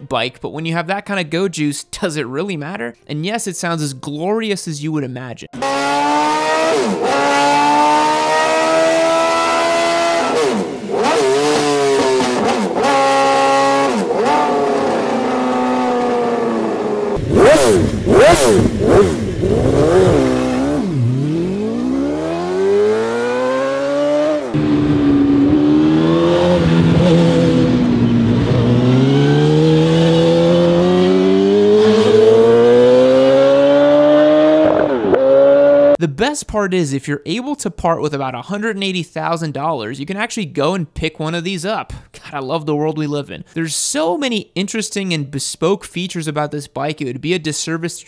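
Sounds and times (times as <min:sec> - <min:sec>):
motorcycle engine revving: 0:05.6 - 0:36.0.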